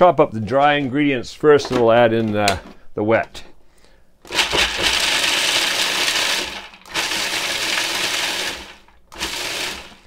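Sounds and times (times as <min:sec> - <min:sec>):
food processor chopping: 0:04.2 - 0:10.0.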